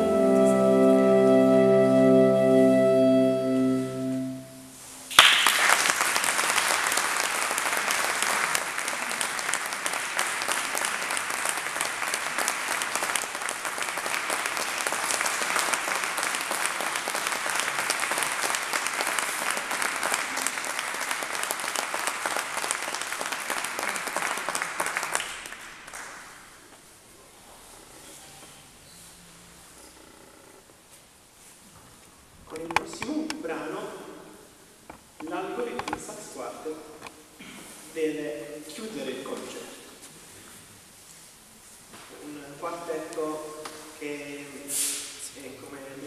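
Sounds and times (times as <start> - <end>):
saxophone quartet chord: 0.0 - 5.0
audience applause: 5.1 - 26.4.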